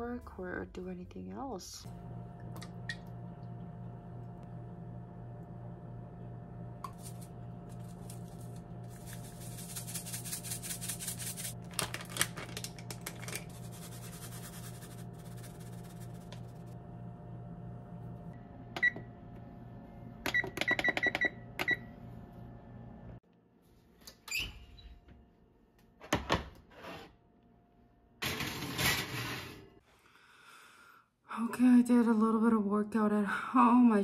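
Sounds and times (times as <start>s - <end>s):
steady low hum: 0.3s - 20.2s
dry spices shaken out: 7.0s - 16.6s
oven control panel beeping: 20.2s - 21.9s.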